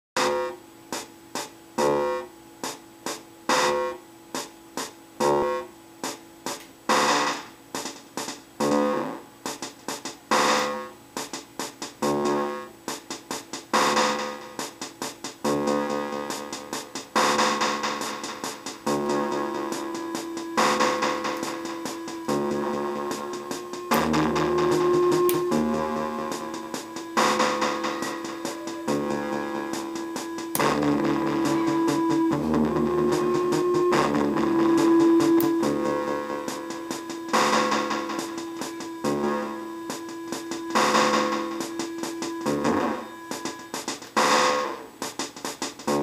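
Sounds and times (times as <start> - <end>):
glitchy synth notes: 17.2 - 44.8.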